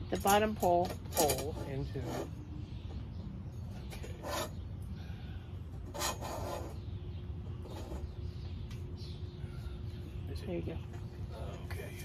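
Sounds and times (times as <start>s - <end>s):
wire frame scraping on metal pole: 0.1s - 2.4s, 3.9s - 4.6s, 5.8s - 6.9s, 7.6s - 8.2s.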